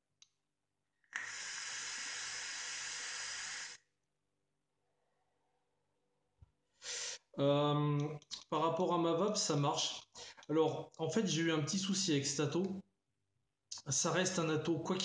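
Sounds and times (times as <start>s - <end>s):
airy hiss of vape draw: 1.1s - 3.9s
faint exhale: 1.2s - 3.8s, 6.8s - 7.3s.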